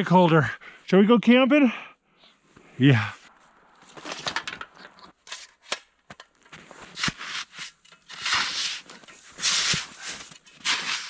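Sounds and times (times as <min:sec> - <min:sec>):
snow shovel scraping snow: 0:06.6 - 0:11.0.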